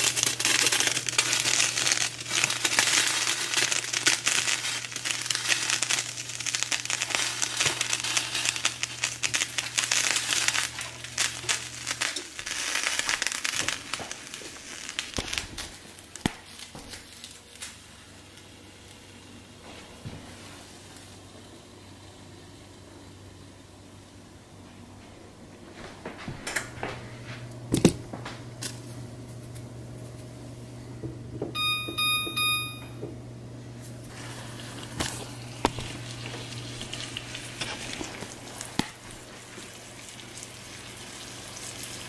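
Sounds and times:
fish frying in oil: 0.0s - 16.4s, 34.1s - 42.0s.

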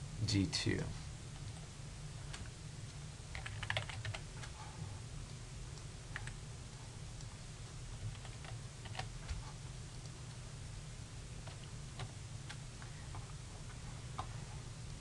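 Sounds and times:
low steady hum: 0.0s - 15.0s
computer keyboard typing: 3.3s - 4.6s, 6.1s - 6.4s, 8.0s - 9.1s, 11.4s - 12.6s.

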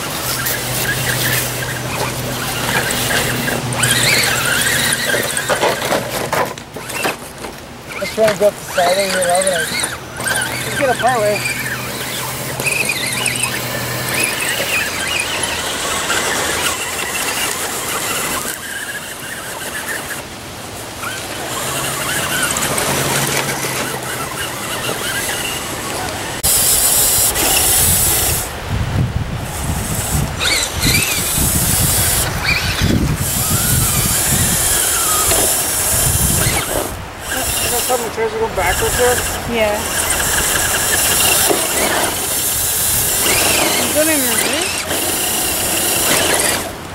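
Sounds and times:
electric motors whining: 0.0s - 46.9s
wind gusts buffeting microphone: 20.3s - 46.9s.

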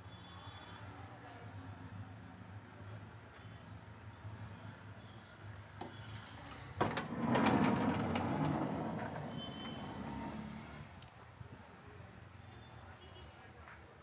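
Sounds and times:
sliding door rolling open: 6.8s - 10.9s.

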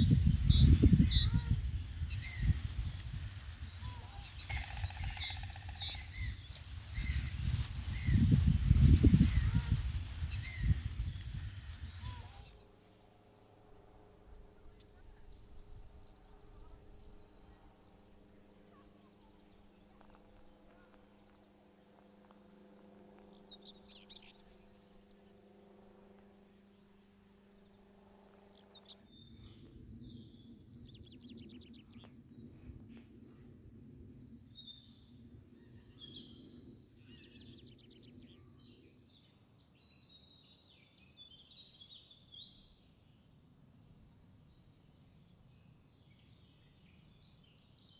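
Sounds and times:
faint low hum: 0.0s - 39.7s
high bird chirps: 3.8s - 12.5s
bird warbling with high trills: 4.0s - 7.6s.

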